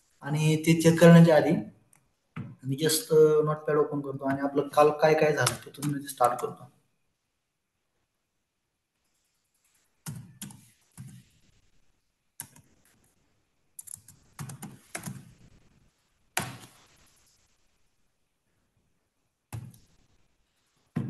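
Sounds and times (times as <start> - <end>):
typing on computer keyboard: 12.4 - 12.8, 13.8 - 15.4.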